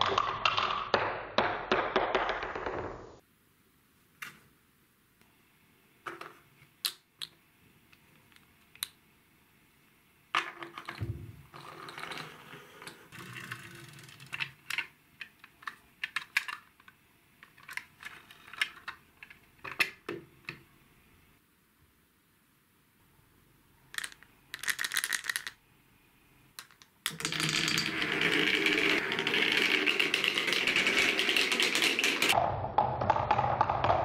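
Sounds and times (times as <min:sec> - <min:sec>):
scraping and handling noise: 0:10.4 - 0:20.6.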